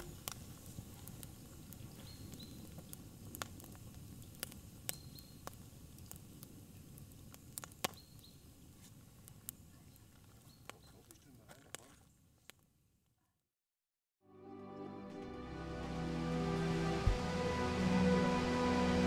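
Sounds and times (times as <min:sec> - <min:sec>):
low rumble of flame: 0:00.0 - 0:10.8
wood fire popping and snapping: 0:00.0 - 0:12.7.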